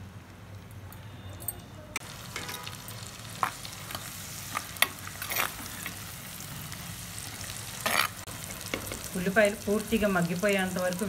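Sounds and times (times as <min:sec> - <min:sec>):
onions sizzling in hot oil: 0:02.0 - 0:11.0
steel ladle scraping a clay pot: 0:04.7 - 0:06.1, 0:07.8 - 0:08.2.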